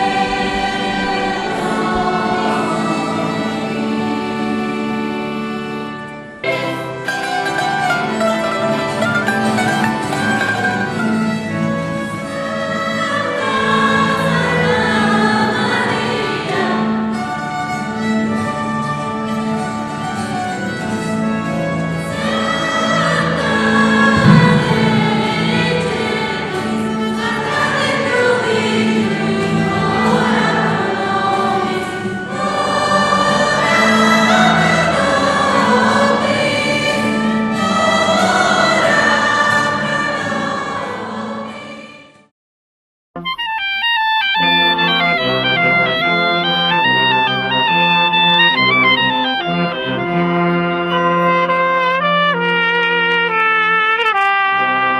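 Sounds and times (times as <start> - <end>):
group singing: 0.0 - 5.1, 6.4 - 8.4, 12.3 - 17.2, 22.0 - 42.3
instruments accompanying: 0.0 - 14.0, 16.5 - 40.7
sustained low note: 24.2 - 26.6.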